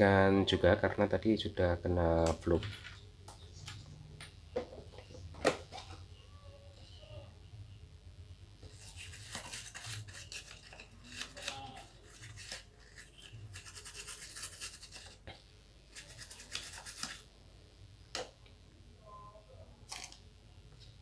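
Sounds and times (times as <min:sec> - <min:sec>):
brush scrubbing circuit board: 0:08.6 - 0:15.2, 0:15.8 - 0:17.3.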